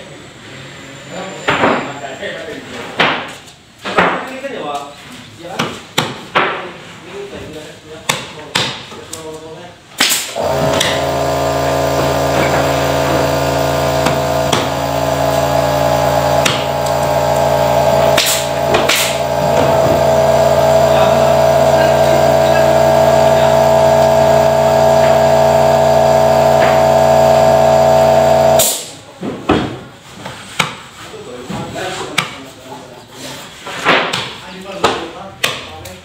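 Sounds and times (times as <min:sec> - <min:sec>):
air compressor running: 0:10.1 - 0:29.0.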